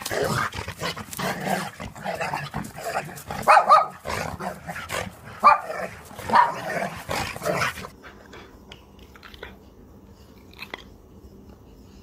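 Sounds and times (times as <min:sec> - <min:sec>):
dog barking: 0:03.4 - 0:04.5, 0:05.4 - 0:07.0.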